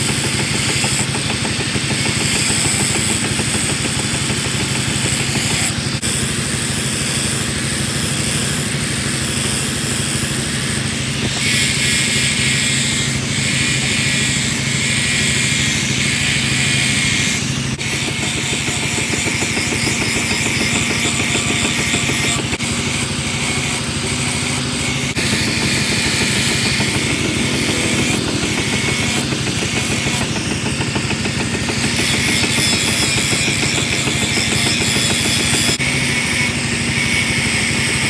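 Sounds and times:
angle grinder motor hum: 0.0 - 38.0
grinding wheel hissing on steel: 0.0 - 38.0.

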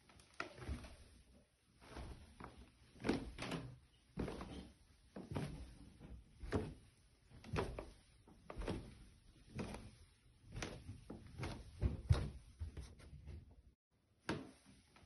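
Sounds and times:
footsteps on staircase: 10.5 - 13.4.

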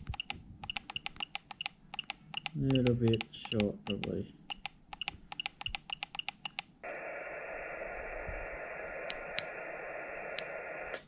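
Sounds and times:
small clicks: 0.0 - 6.7
radio static hiss: 6.8 - 11.0.

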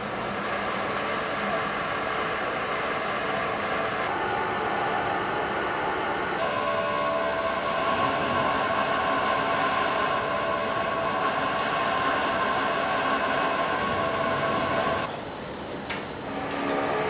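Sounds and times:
high wheel squealing: 0.0 - 15.1
train car rolling: 0.0 - 17.0.

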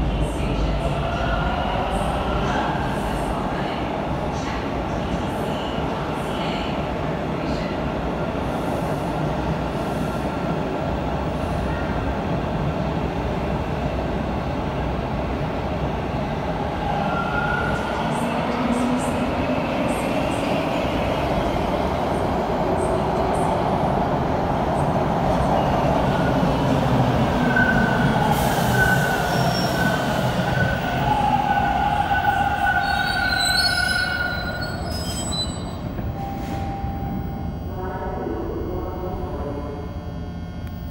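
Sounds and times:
subway train passing: 0.0 - 40.9
train brakes squealing: 27.4 - 30.7, 31.4 - 37.0.

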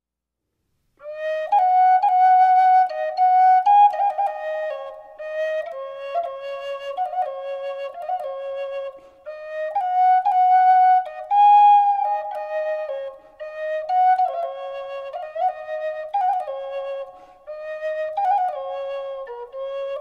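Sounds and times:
solo flute melody: 1.0 - 20.0.

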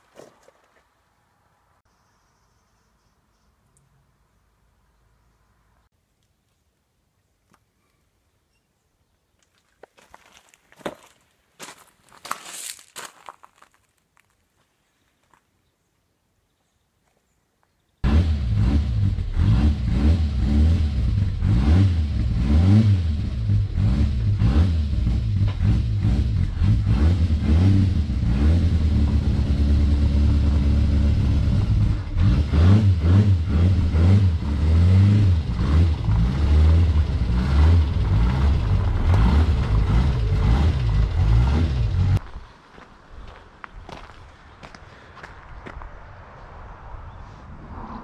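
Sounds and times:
race car engine revving: 18.0 - 42.2.

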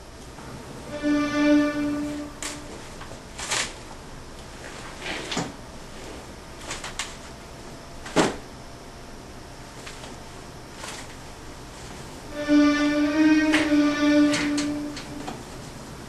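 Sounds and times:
held humming tone: 0.3 - 3.2, 12.3 - 16.0.

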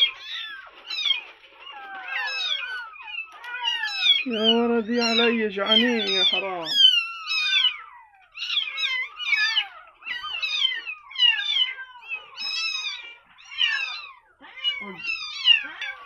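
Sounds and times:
kitten mewing: 8.4 - 16.0.

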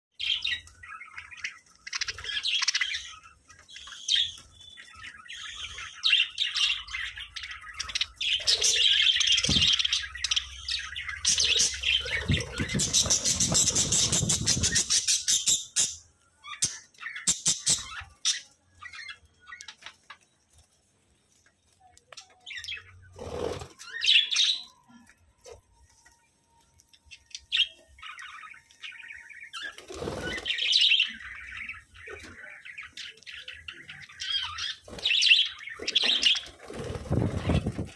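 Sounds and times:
budgerigars chirping: 0.2 - 20.0, 27.3 - 37.9.

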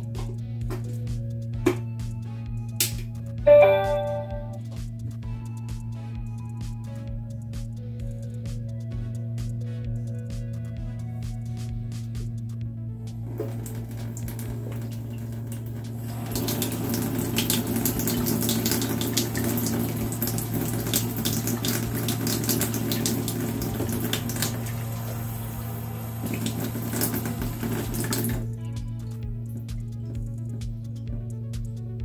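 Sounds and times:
steady low hum: 3.5 - 18.1, 23.4 - 32.0.

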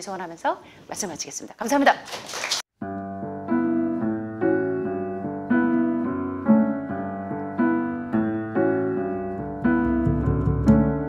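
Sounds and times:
slow piano chords: 2.8 - 11.0.

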